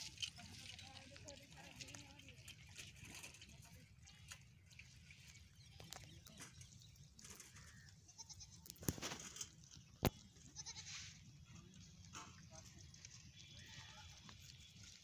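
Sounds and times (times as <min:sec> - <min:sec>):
goats bleating: 0:07.6 - 0:08.8, 0:10.1 - 0:11.2, 0:13.3 - 0:14.5.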